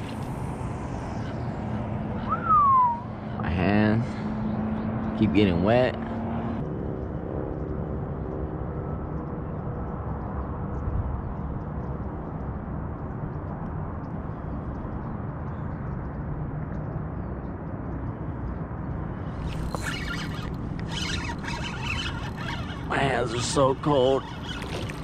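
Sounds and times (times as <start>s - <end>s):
faint hum: 0.0s - 4.9s, 17.2s - 25.0s.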